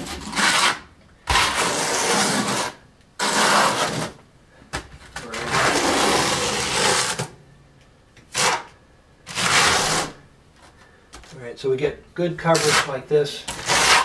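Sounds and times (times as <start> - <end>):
trowel scraping wet mortar: 0.0 - 4.2, 12.4 - 14.0.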